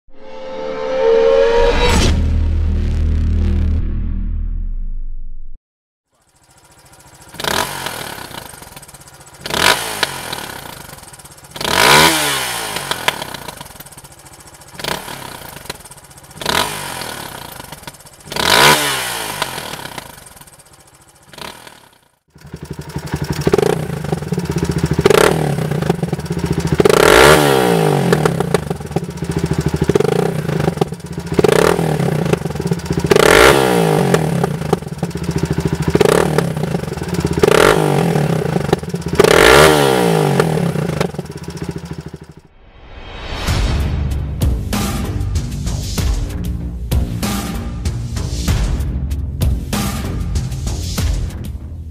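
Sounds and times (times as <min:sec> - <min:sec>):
low engine rumble at idle: 0:06.1 - 0:11.6, 0:12.7 - 0:18.4, 0:19.5 - 0:21.4, 0:22.3 - 0:26.9, 0:28.0 - 0:33.2, 0:34.1 - 0:39.3, 0:40.3 - 0:42.4
motorcycle engine revving: 0:06.1 - 0:42.5.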